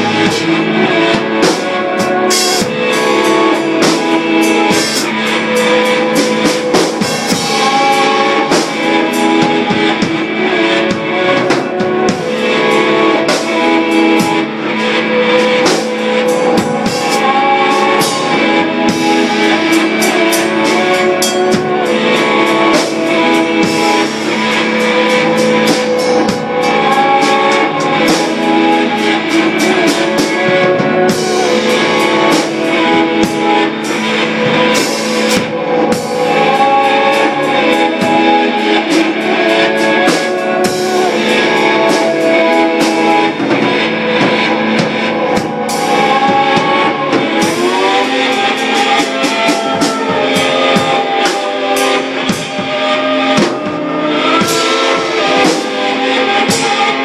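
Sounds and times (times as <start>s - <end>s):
drum kit with cymbal hits: 0.0s - 57.0s
electric guitar: 0.0s - 57.0s.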